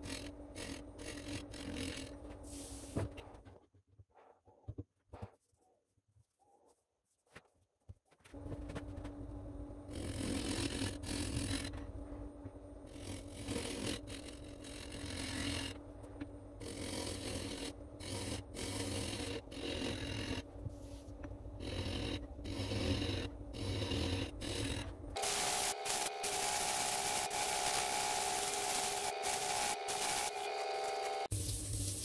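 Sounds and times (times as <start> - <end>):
turning tool cutting wood: 12.9 - 15.8, 16.6 - 20.5, 21.6 - 31.3
wood lathe motor hum: 16.6 - 20.4, 21.6 - 31.3
shavings hissing off: 25.2 - 32.0.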